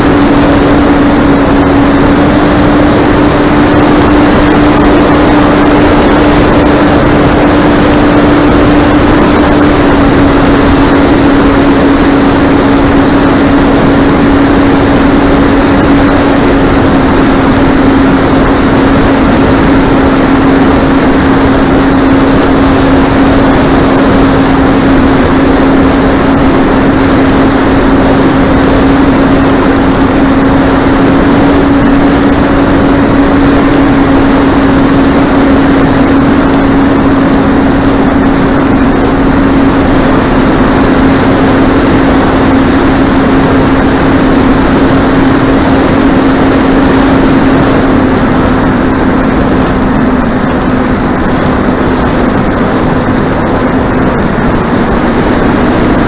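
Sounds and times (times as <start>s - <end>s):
model plane motor hum: 0.0s - 56.0s
wind rush: 0.0s - 56.0s.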